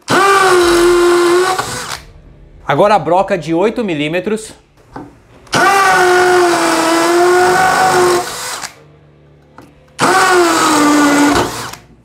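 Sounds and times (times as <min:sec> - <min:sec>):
hammer drill drilling into masonry: 0:00.0 - 0:02.0, 0:05.5 - 0:08.8, 0:10.0 - 0:11.8.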